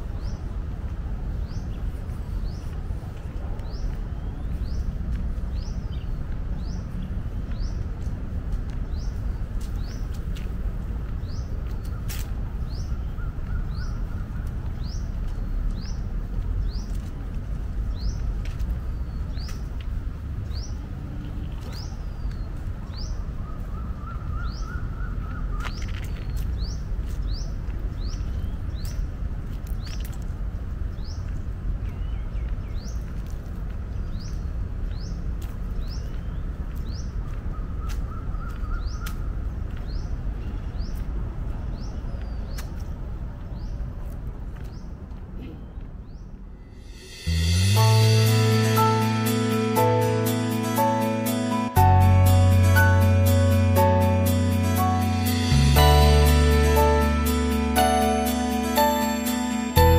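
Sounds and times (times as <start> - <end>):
steady low rumble: 46.4 - 59.9.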